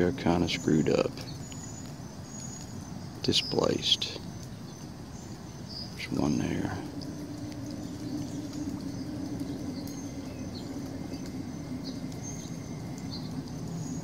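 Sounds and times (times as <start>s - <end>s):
noisy outdoor bed: 0.0s - 14.0s
steady low hum: 0.0s - 14.0s
high chirps: 4.2s - 14.0s.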